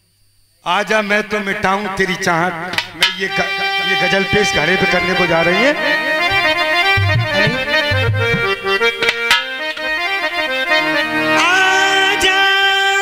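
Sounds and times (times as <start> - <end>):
harmonium melody: 1.3 - 13.0
sharp drum strokes: 6.2 - 8.7
low drum thumps: 6.2 - 8.9.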